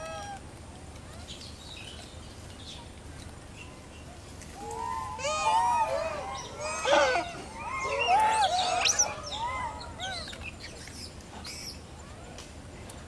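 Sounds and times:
monkeys cooing: 5.2s - 10.4s.

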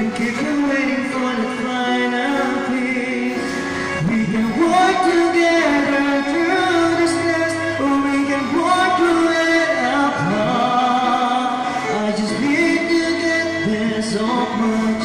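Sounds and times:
backing track music: 0.0s - 15.0s
man singing into a microphone: 0.0s - 15.0s.

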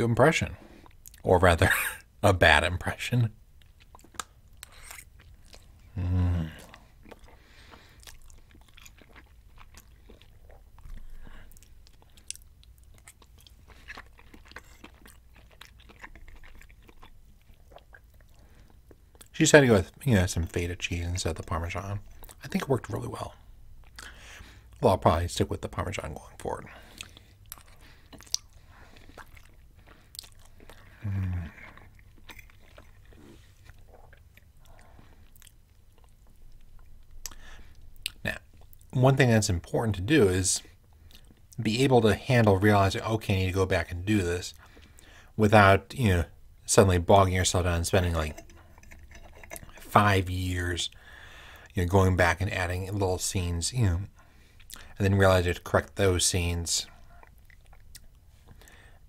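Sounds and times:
man chewing food: 0.6s - 1.3s, 3.4s - 19.3s, 21.3s - 22.4s, 23.3s - 24.8s, 26.7s - 39.0s, 40.6s - 41.6s, 44.5s - 45.4s, 46.3s - 50.0s, 50.8s - 51.8s, 54.2s - 55.0s, 56.9s - 59.0s
closed-mouth mmm hum: 5.8s - 7.3s, 30.6s - 31.9s
slurping noodles: 48.0s - 49.9s.

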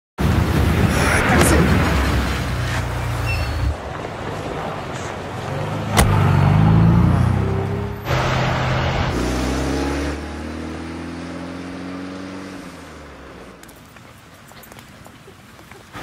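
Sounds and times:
car engine pulling away: 1.7s - 13.9s.

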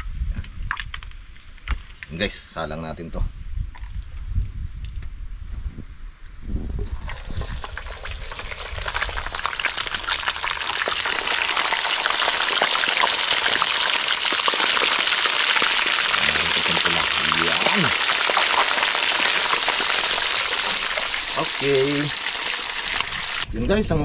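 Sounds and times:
fish frying in hot oil: 7.0s - 23.5s.

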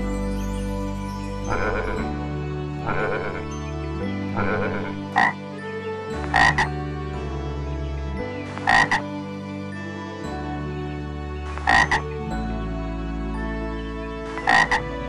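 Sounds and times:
soft background music: 0.0s - 15.0s
frog croaking: 2.8s - 3.6s, 4.4s - 5.4s, 6.2s - 6.7s, 8.5s - 9.0s, 11.5s - 12.2s, 14.4s - 15.0s.

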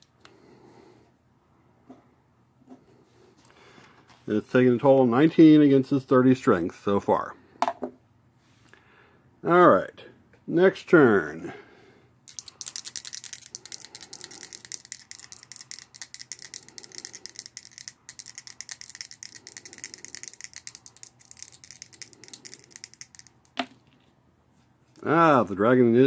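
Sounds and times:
dice rattling in a hand: 12.3s - 24.0s.

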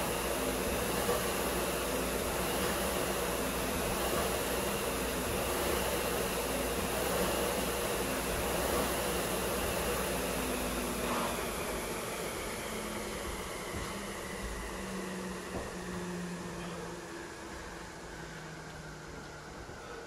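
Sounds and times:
flywheel fan whirring: 0.0s - 20.0s.

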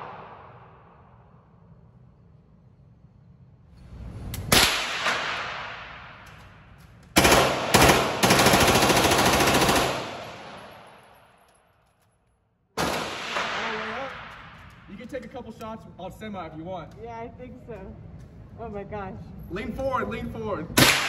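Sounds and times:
submachine gun firing: 7.2s - 11.0s, 12.8s - 14.3s.

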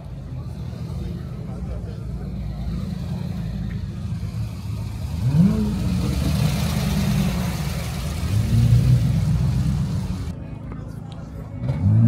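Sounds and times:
car engine revving: 0.2s - 10.3s.

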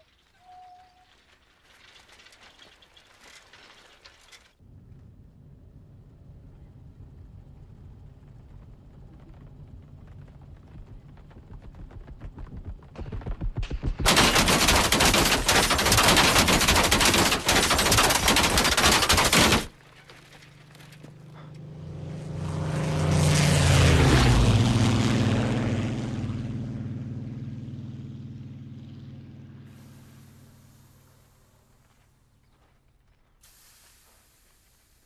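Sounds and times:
machine-gun fire: 13.6s - 19.8s
propeller plane passing overhead: 20.5s - 31.2s.

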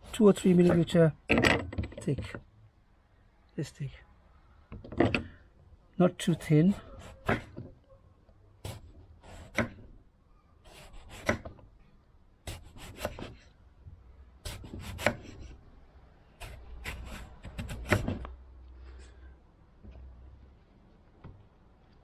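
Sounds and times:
knife slicing on wooden board: 10.7s - 11.6s, 12.5s - 13.4s, 14.5s - 15.6s, 16.4s - 18.3s.

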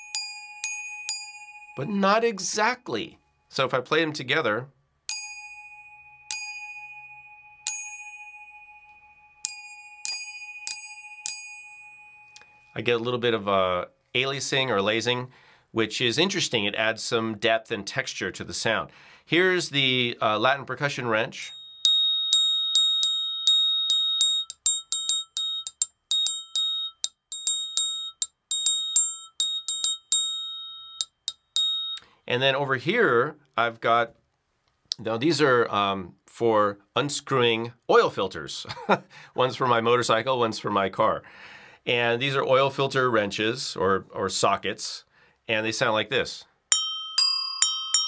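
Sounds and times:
metal wrenches struck ringing: 21.4s - 32.0s.

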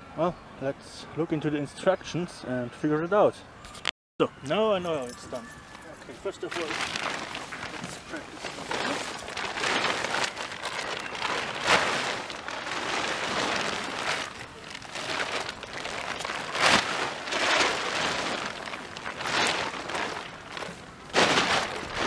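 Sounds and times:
tent fabric rustling: 5.0s - 22.0s
fabric swishing as flapped: 6.5s - 22.0s.

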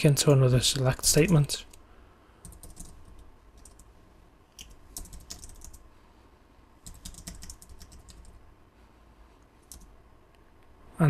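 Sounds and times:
keyboard typing: 2.4s - 3.9s, 4.6s - 5.8s, 6.8s - 8.4s, 9.6s - 9.9s.

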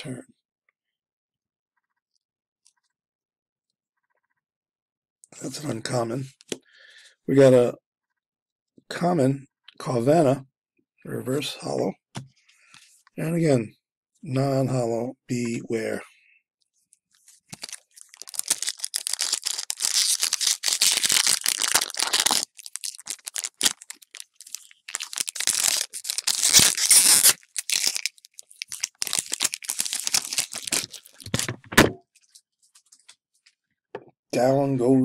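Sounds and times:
foil wrapper tearing and crinkling: 17.5s - 31.5s.

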